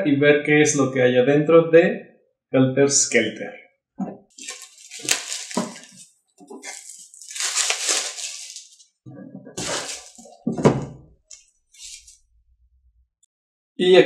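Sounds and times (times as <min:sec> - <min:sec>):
plastic wrap crinkling: 0:04.3 - 0:08.9, 0:09.6 - 0:12.2
cardboard box handled: 0:04.4 - 0:08.8, 0:09.6 - 0:10.8.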